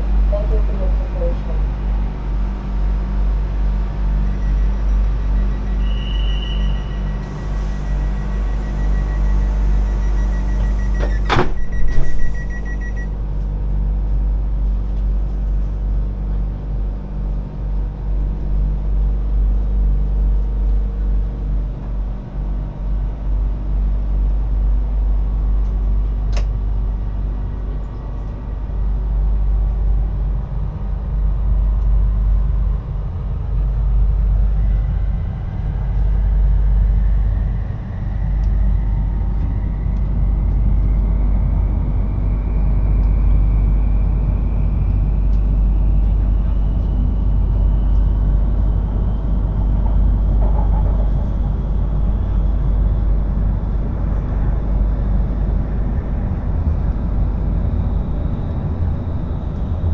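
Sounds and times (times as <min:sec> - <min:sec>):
train low rumble: 0:00.0 - 0:59.9
train motor whine rising in pitch: 0:01.8 - 0:13.1, 0:26.0 - 0:59.9
rapid high electronic beeping: 0:04.3 - 0:13.1.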